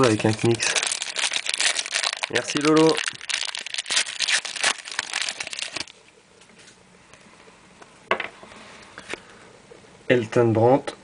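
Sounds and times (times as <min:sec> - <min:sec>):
wrapper crinkling and tearing: 0:00.0 - 0:06.0.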